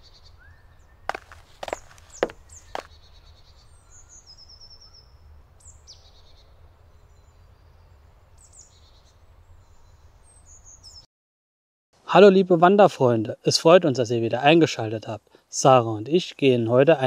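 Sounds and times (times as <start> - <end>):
songbirds chirping and trilling: 0.0 - 11.0.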